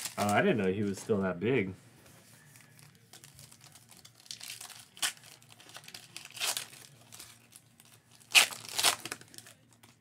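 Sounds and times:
foil wrapper tearing and crinkling: 0.0s - 0.6s, 2.7s - 10.0s.

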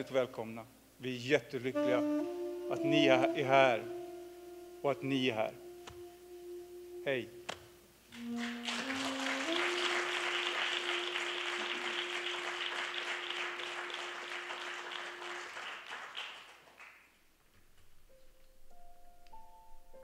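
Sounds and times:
held musical note: 1.7s - 14.2s
applause: 8.1s - 17.3s.

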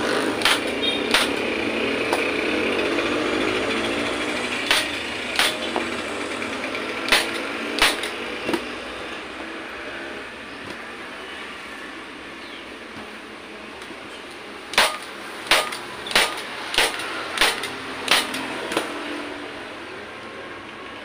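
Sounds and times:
staple gun clacks: 0.4s - 1.4s, 4.6s - 5.6s, 7.1s - 8.2s, 14.7s - 18.9s.

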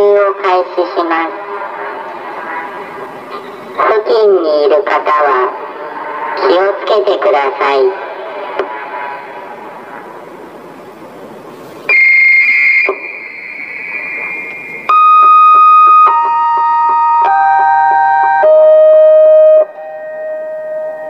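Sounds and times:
steady rushing hiss: 8.2s - 14.9s
descending electronic chime: 11.9s - 21.0s
high electronic tone: 11.9s - 21.0s.

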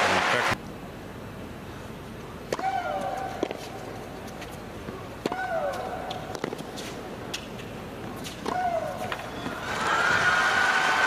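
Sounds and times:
tennis ball bounces: 5.2s - 9.3s.

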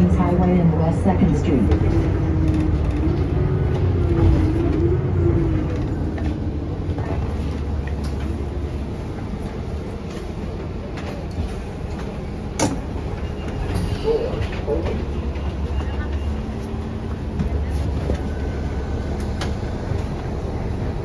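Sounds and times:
bus engine and road rumble: 0.0s - 21.0s.

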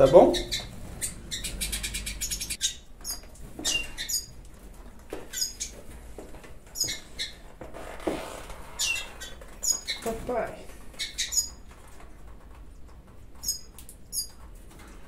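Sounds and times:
birds chirping: 0.0s - 4.4s, 5.2s - 5.9s, 6.7s - 7.5s, 8.7s - 11.7s, 13.4s - 14.4s.

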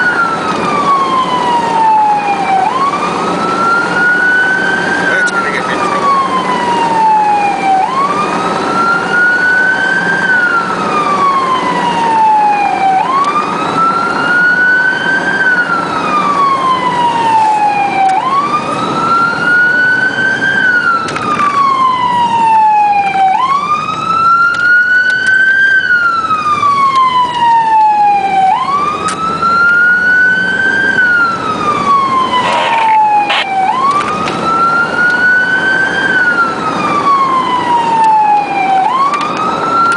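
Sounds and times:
siren wailing: 0.0s - 39.9s
vehicle driving hum: 0.0s - 39.9s.

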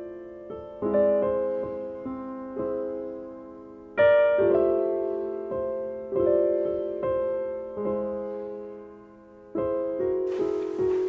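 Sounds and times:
slow piano chords: 0.0s - 11.0s.

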